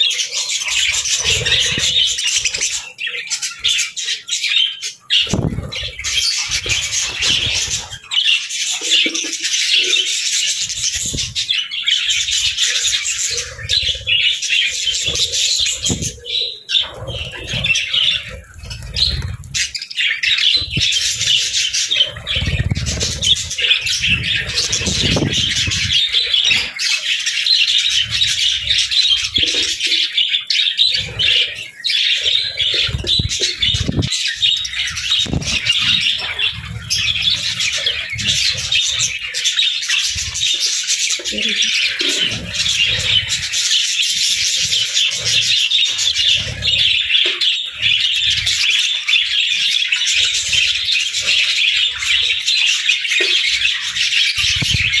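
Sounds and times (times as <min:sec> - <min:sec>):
budgerigars chattering and chirping: 0:00.0 - 0:55.0
wings fluttering: 0:00.7 - 0:02.8, 0:05.1 - 0:26.8, 0:27.7 - 0:41.1.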